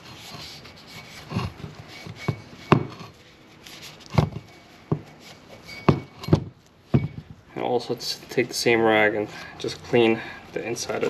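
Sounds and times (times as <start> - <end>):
metal knocking on wooden workbench: 5.9 - 7.4.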